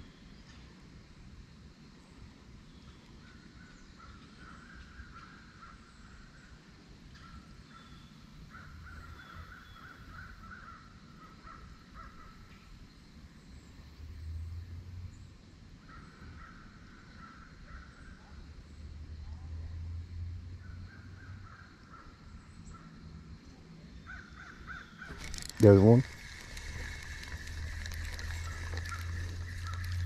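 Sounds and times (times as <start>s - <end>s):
crows cawing: 24.1s - 30.0s.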